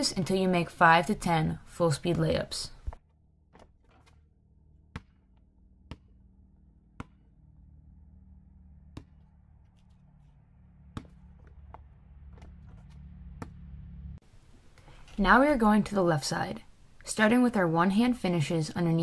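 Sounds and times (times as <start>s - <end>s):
low steady hum: 4.2s - 18.4s.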